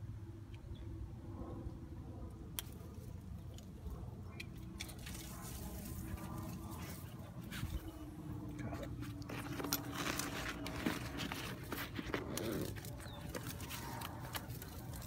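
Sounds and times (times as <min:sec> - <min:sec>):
steady low hum: 0:00.0 - 0:15.0
dry grass rustling: 0:03.1 - 0:15.0.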